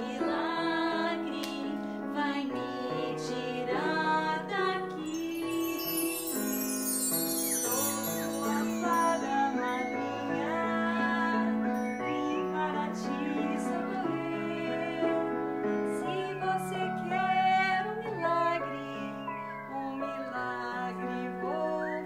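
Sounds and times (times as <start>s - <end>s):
woman singing operatic notes: 0.0s - 6.4s, 7.4s - 15.3s, 16.0s - 22.0s
instrumental accompaniment: 4.9s - 14.4s.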